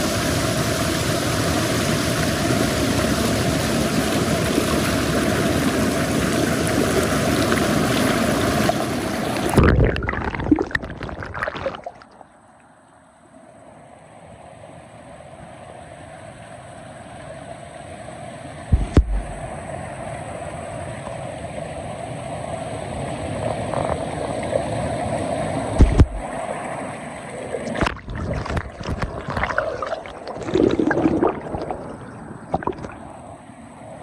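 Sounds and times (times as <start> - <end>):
knocks and crackles: 18.7 - 19.5, 25.8 - 26.3
low thumps: 18.7 - 19.5.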